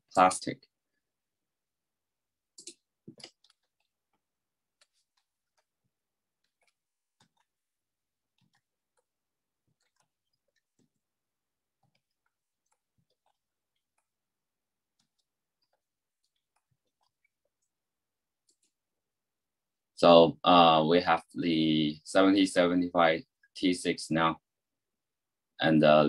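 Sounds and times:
keyboard typing: 2.6s - 7.7s, 8.3s - 14.2s
mouse clicking: 6.4s - 7.6s, 8.3s - 11.1s.

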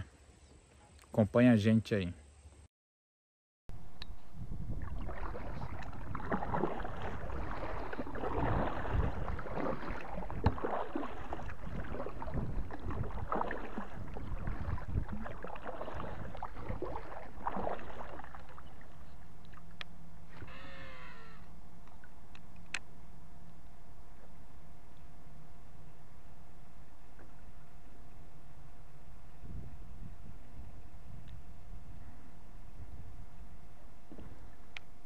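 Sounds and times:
paddle swishing through water: 4.4s - 20.6s
short pitched call: 20.4s - 21.5s.

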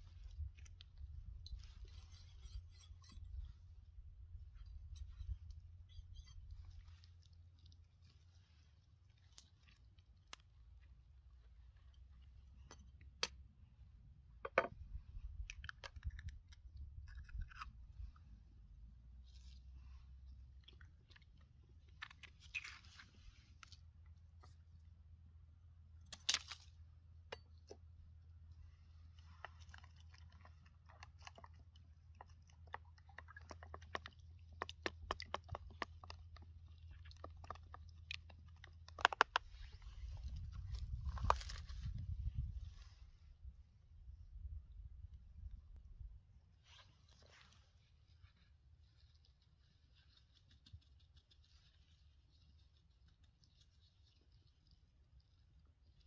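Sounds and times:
clicks and crackles handling raw chicken: 0.0s - 3.4s, 4.2s - 13.6s, 14.4s - 18.3s, 19.1s - 25.0s, 26.0s - 42.5s.

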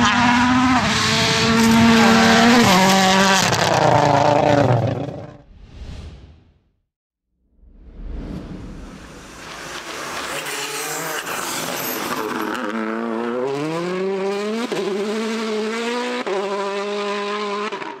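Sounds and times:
rally car engine revving: 0.0s - 5.4s, 9.0s - 18.0s
rush of noise: 7.5s - 11.7s.

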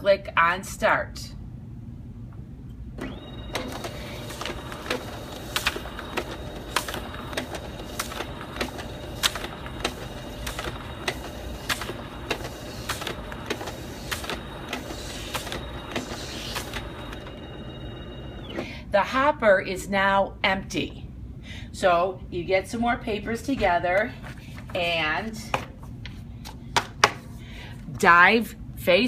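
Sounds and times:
scanner feed whine: 3.0s - 18.8s.

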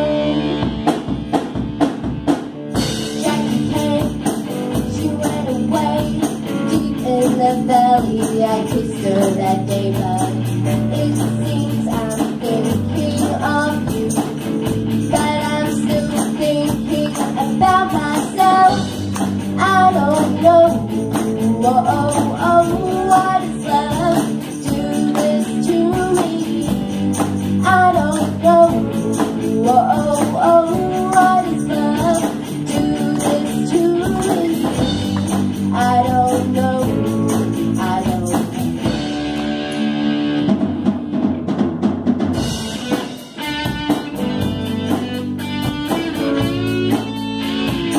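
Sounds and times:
live rock band playing: 0.0s - 47.9s.

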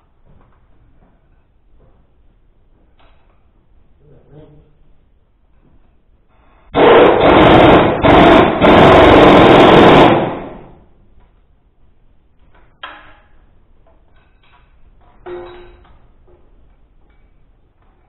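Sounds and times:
impact wrench hammering: 6.8s - 10.7s
sharp metal clanks: 14.0s - 16.2s.

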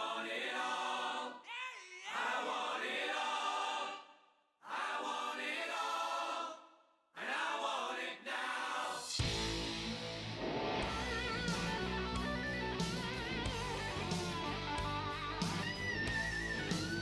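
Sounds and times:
choir singing held chords: 0.0s - 1.5s, 2.1s - 9.6s.

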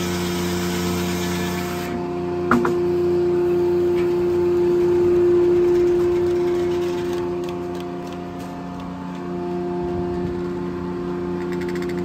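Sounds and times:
saw cutting wood: 0.0s - 2.0s
circular saw blade humming: 0.0s - 12.0s.

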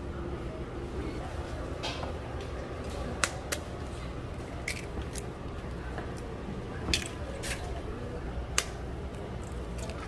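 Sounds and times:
steady low hum: 0.0s - 10.0s
eggshells cracking: 4.6s - 5.3s.

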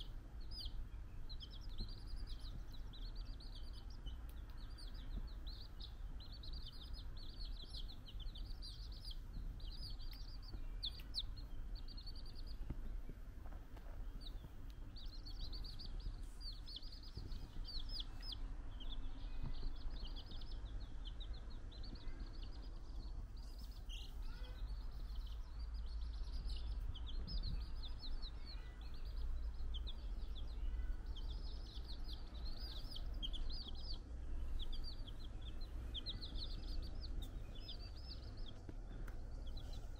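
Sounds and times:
chicks peeping: 0.0s - 39.9s
low steady hum: 0.0s - 39.9s.

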